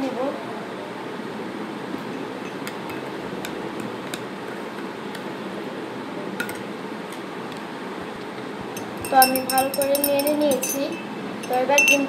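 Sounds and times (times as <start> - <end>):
salt ticking: 8.7 - 12.0.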